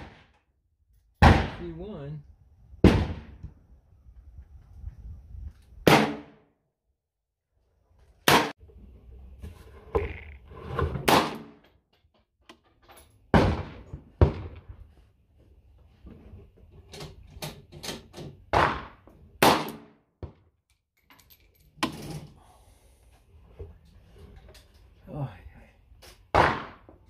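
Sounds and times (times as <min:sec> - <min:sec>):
loud gunshots: 0:01.2 - 0:01.7, 0:02.8 - 0:03.3, 0:05.9 - 0:06.4, 0:18.5 - 0:19.9.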